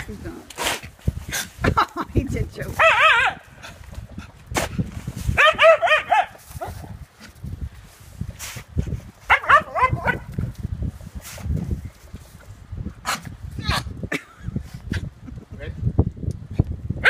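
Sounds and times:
dog yapping: 0:02.8 - 0:03.4, 0:05.4 - 0:06.7, 0:09.3 - 0:10.3.

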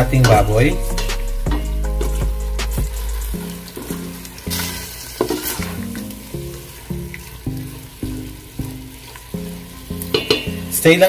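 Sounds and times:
low hum: 0:00.0 - 0:03.7
background music: 0:00.0 - 0:11.0
meat sizzling in a pot: 0:00.0 - 0:11.0.

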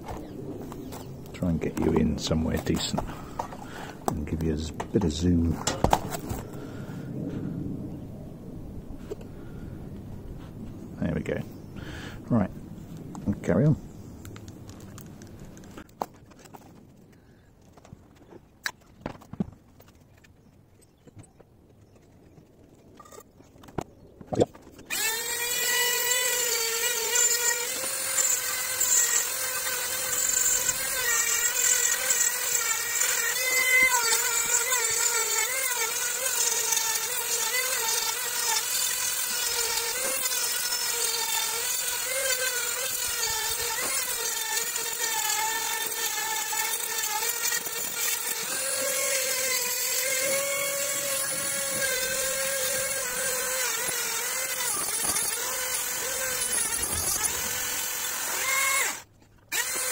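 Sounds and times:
rotary tool grinding whine: 0:24.7 - 0:59.9.

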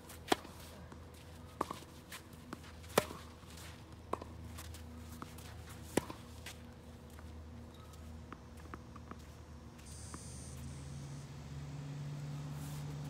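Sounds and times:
racket hitting tennis ball: 0:00.2 - 0:00.7, 0:01.6 - 0:06.6.

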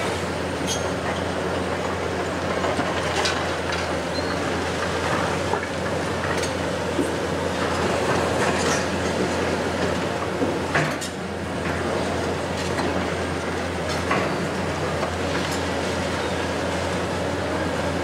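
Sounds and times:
excavator engine drone: 0:00.0 - 0:18.0.

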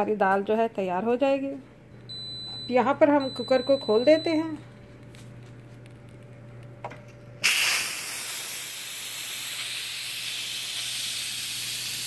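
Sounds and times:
steam hissing: 0:07.4 - 0:12.0.

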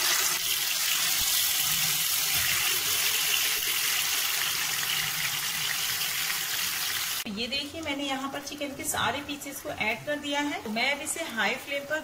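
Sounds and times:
chicken sizzling in hot oil: 0:00.0 - 0:07.3.

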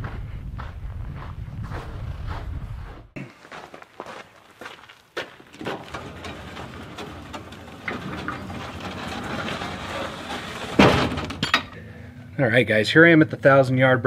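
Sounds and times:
steel frame rattling and scraping: 0:05.3 - 0:11.9
loud metal clank: 0:05.6 - 0:11.9.

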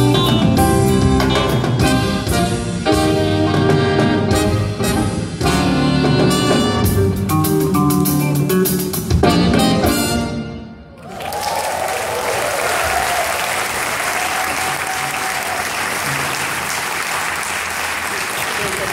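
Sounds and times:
jazz band playing: 0:00.0 - 0:10.8
audience applause: 0:11.0 - 0:18.9.

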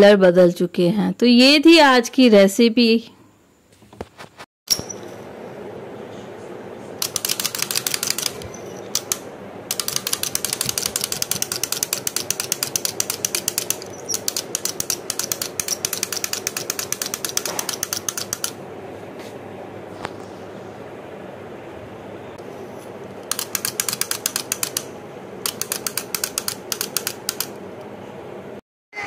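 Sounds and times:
wind-up toy clockwork clicking: 0:07.0 - 0:18.6, 0:23.2 - 0:27.6.

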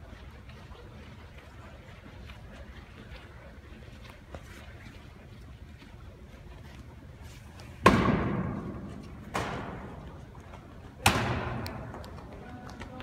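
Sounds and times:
heavy thuds echoing in gym: 0:07.8 - 0:10.1, 0:11.0 - 0:12.0.

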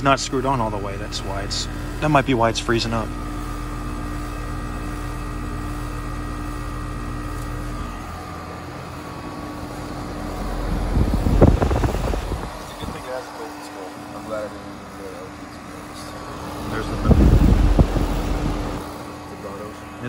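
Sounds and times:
heat pump humming: 0:00.0 - 0:20.0
fan air gust on microphone: 0:06.8 - 0:20.0.

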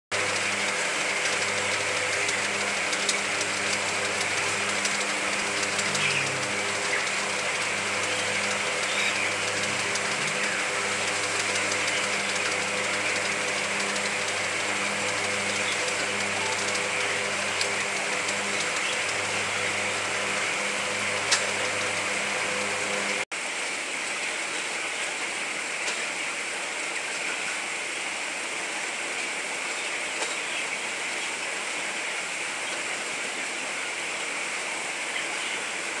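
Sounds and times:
ventilation air rush: 0:00.1 - 0:23.3
ventilation machinery hum: 0:00.1 - 0:36.0.

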